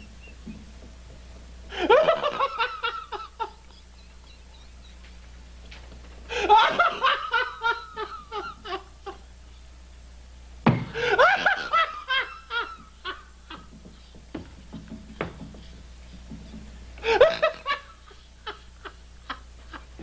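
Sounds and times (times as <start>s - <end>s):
low steady hum: 0.0s - 20.0s
hearty laughter: 1.7s - 4.4s, 6.3s - 9.3s, 10.9s - 13.7s, 17.0s - 20.0s.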